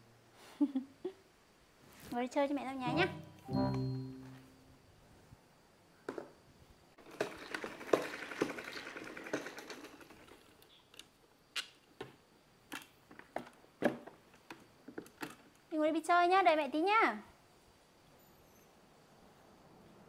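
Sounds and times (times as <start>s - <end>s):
spin mop whirring rattle: 7.0s - 10.6s.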